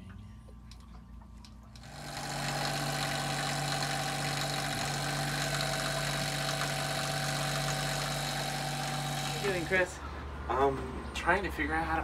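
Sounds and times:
diesel generator engine running: 0:01.8 - 0:11.0.

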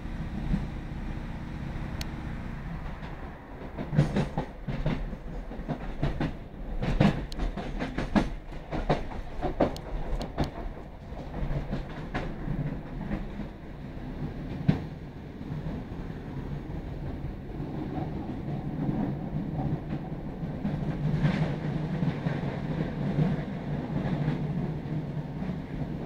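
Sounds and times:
wheels clacking over rail joints: 0:00.0 - 0:15.9
train diesel engine drone: 0:00.0 - 0:26.0.

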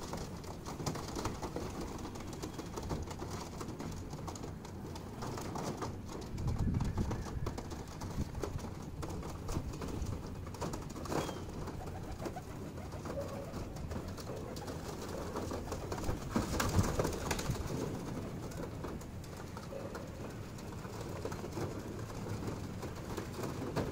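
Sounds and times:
pigeons cooing: 0:10.9 - 0:18.6.

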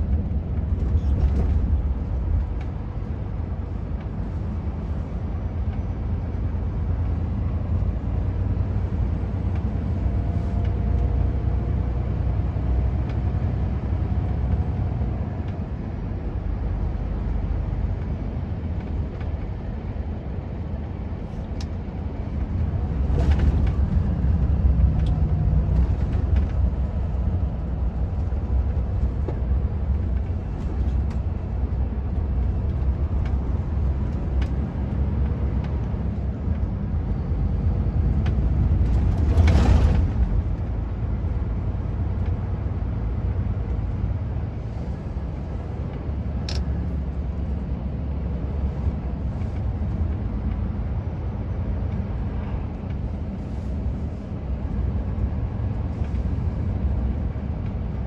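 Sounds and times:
vehicle engine rumble: 0:00.0 - 0:58.0.

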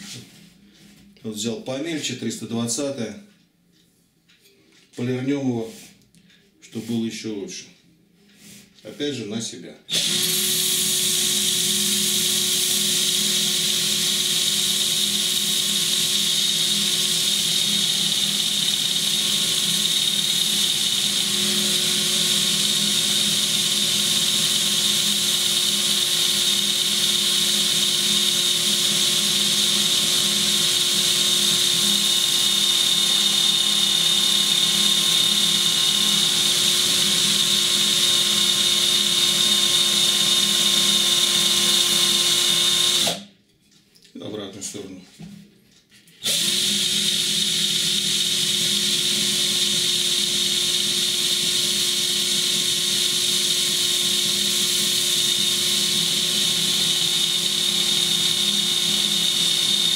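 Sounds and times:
drill motor whine: 0:09.9 - 0:43.3, 0:46.2 - 0:59.9.

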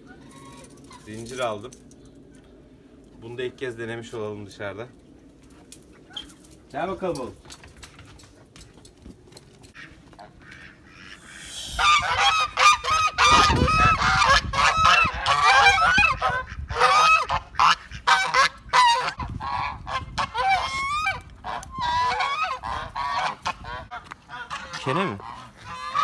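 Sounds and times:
geese honking: 0:09.7 - 0:26.0.

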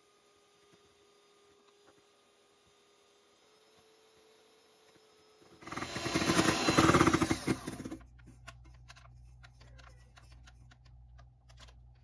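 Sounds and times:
electric hand mixer whipping: 0:03.8 - 0:08.0.

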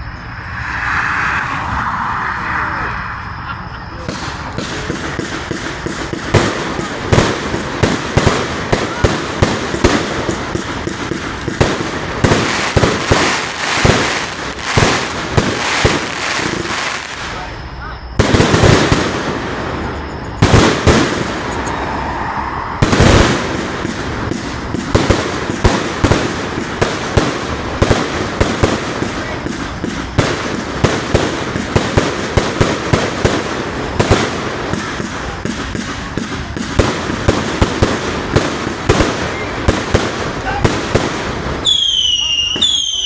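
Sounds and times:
firework cake launches and bangs: 0:04.0 - 0:17.6.

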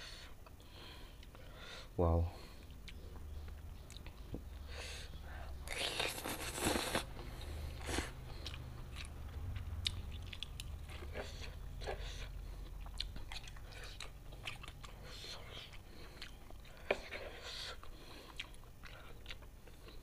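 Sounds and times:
wet chewing with mouth clicks: 0:02.6 - 0:04.7, 0:05.6 - 0:20.0
noodle slurping: 0:05.7 - 0:07.1.

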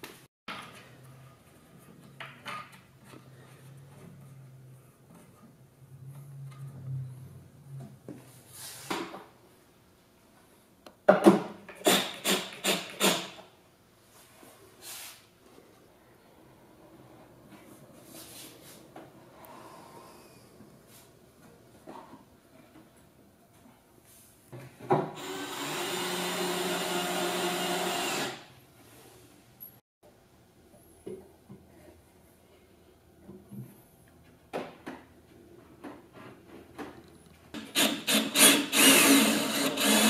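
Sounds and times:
cordless drill bursts: 0:25.2 - 0:28.5, 0:37.8 - 0:40.0.

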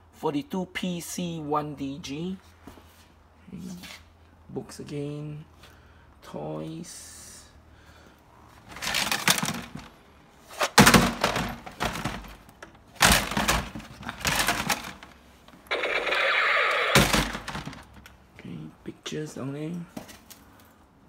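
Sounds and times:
hard objects clattering: 0:08.6 - 0:10.0, 0:10.6 - 0:15.2, 0:17.0 - 0:18.1.

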